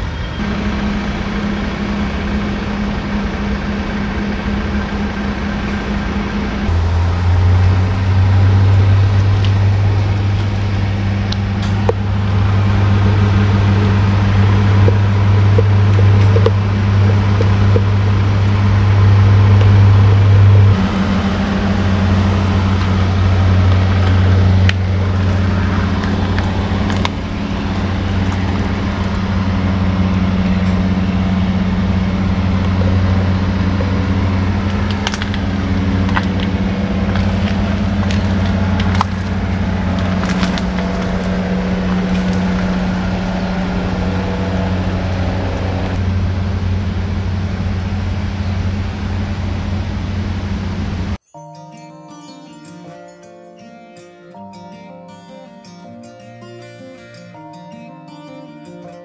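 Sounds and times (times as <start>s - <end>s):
low motor hum: 0.0s - 51.2s.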